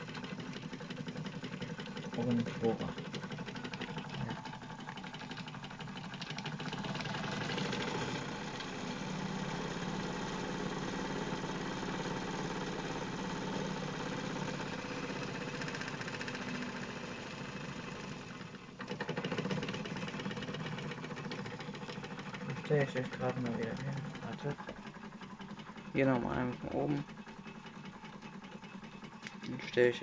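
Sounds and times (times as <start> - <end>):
toy steam engine beating: 18.9 - 30.0.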